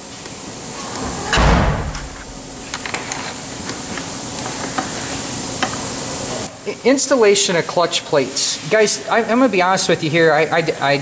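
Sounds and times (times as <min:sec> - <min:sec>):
steady hiss: 0:00.0 - 0:06.8
dull thump: 0:01.0 - 0:02.9.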